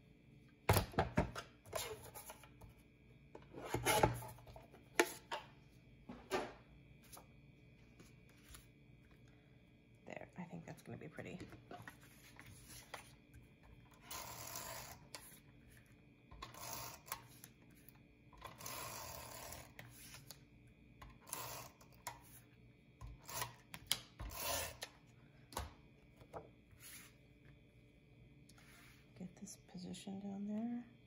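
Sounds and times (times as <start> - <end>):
paper rubbing and sliding: 26.8 - 27.2.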